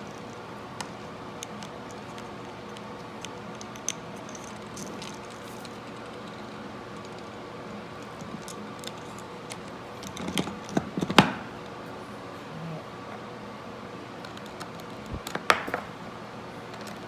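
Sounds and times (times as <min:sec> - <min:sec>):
wooden pieces clicking and tapping: 0:00.0 - 0:07.4, 0:14.2 - 0:15.8.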